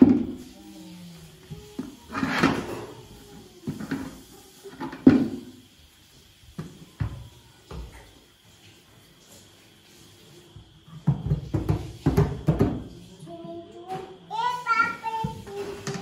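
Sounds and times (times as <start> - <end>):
hollow knocks on plastic buckets: 11.0 - 12.9.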